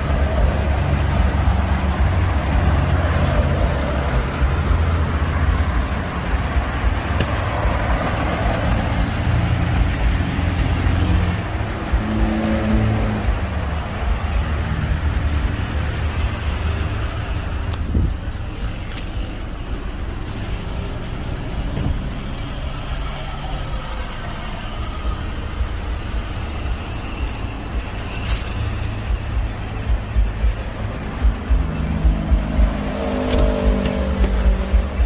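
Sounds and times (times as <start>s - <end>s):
road traffic rumble: 0.0s - 35.0s
short hiss: 28.2s - 28.6s.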